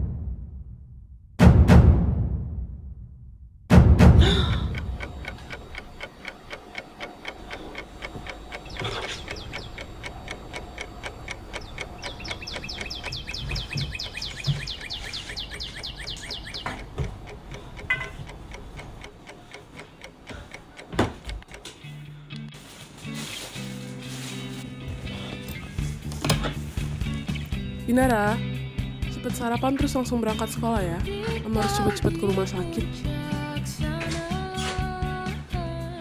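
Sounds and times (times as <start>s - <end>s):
clock ticking quickly: 4.2s - 21.9s.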